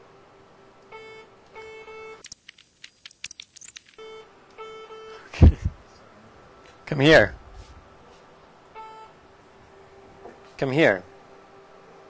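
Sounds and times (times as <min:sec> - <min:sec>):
quick sharp clicks: 0:02.2 - 0:04.0.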